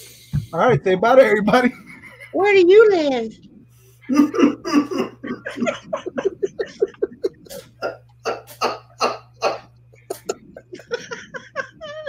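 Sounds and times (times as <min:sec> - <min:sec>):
person laughing hard: 0:04.1 - 0:12.0.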